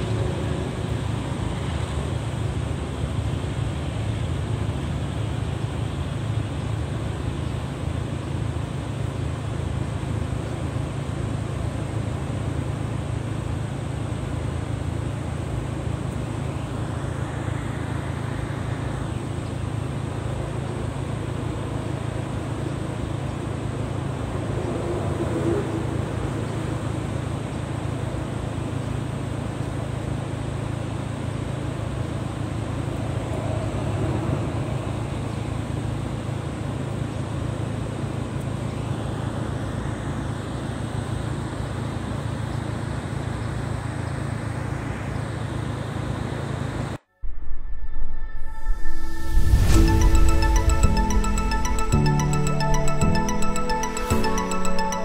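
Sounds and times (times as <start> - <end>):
low rumble: 47.1 - 54.1.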